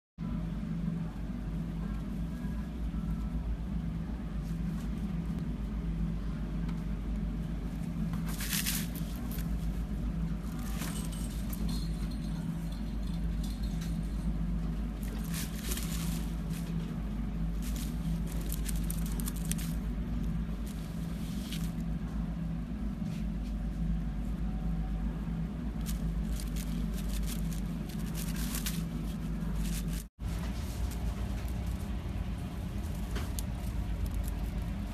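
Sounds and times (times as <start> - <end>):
low hum: 0.2 - 34.9
rabbit nibbling greens: 0.2 - 34.9.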